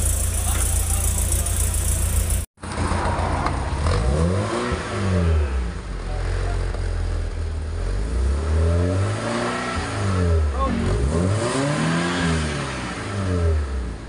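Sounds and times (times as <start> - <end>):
car engine exhaust revving: 0.0 - 2.5, 3.8 - 14.0.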